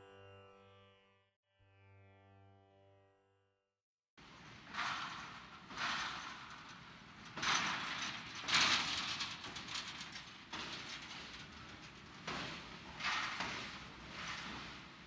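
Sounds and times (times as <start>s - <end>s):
train clattering: 4.3s - 15.0s.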